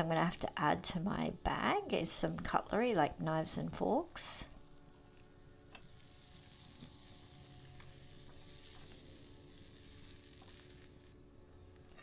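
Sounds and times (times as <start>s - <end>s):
food sizzling in a pan: 5.8s - 11.2s.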